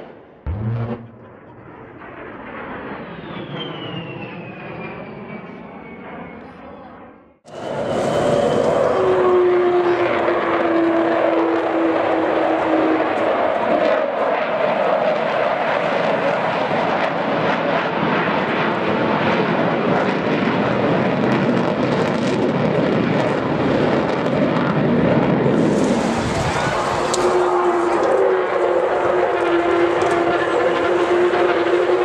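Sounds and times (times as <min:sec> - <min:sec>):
jet engines roaring: 0:00.0 - 0:32.0
steady tone: 0:00.5 - 0:02.4.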